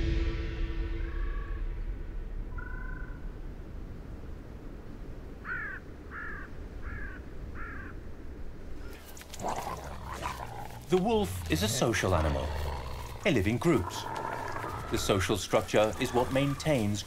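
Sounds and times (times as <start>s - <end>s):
low rumble: 0.0s - 5.4s
animal high calls: 8.8s - 17.0s.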